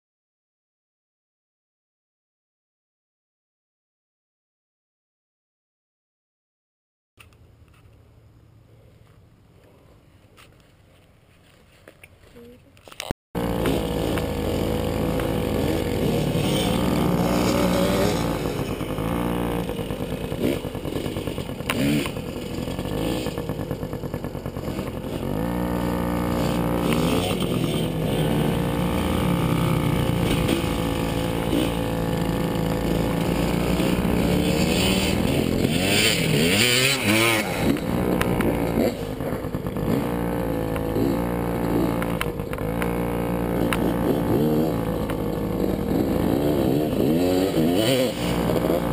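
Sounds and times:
dirt bike engine revving: 13.4 - 48.9.

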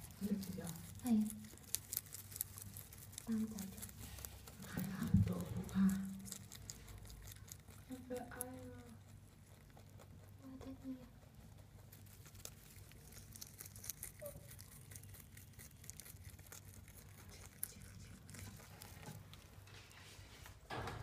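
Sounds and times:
straw rustling: 0.0 - 8.6
rabbit chewing crunching: 0.0 - 21.0.

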